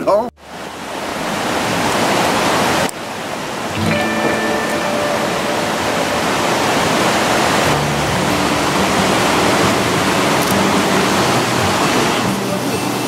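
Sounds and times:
water rushing through canyon: 0.4 - 13.0
faint music tones: 3.8 - 13.0.

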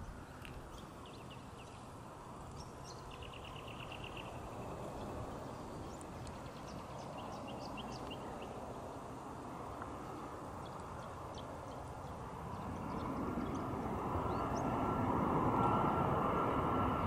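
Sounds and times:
small birds chirping: 0.0 - 14.9
faint jet rumble: 0.0 - 17.0.

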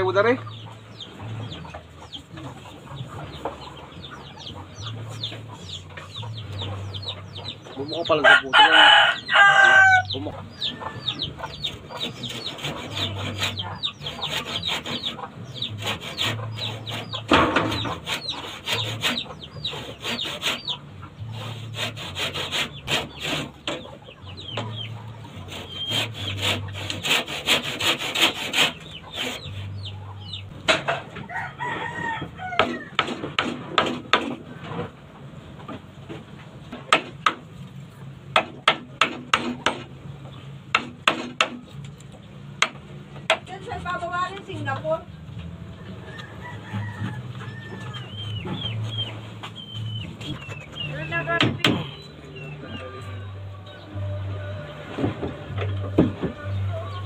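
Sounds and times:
rooster crowing: 8.1 - 11.4, 31.2 - 33.0, 45.8 - 48.3
hand saw cutting wood: 11.4 - 29.9, 32.6 - 34.4, 38.4 - 39.9, 40.7 - 41.7
blade knocking on wood: 38.3 - 39.9, 42.6 - 43.5, 51.3 - 51.9.

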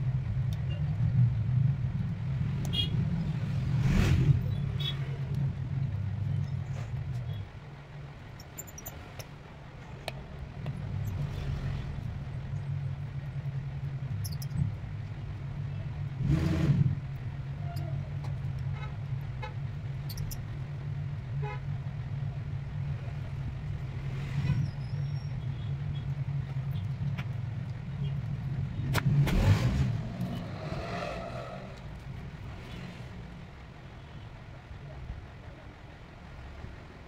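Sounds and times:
road traffic hum: 0.0 - 37.0.

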